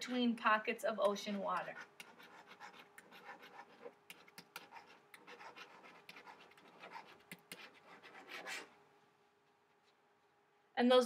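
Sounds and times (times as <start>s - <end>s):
stylus scratching on tablet: 0.0s - 8.7s.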